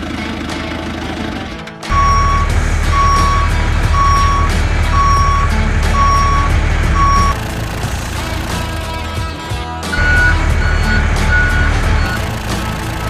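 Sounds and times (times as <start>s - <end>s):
low engine rumble: 0.0s - 9.3s, 10.0s - 13.0s
truck reversing alarm beeping: 1.9s - 9.1s, 9.9s - 13.0s.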